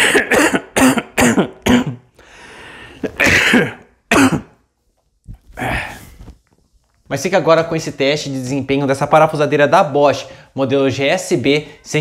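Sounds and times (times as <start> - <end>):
man coughing: 0.0 - 2.1, 3.0 - 4.6.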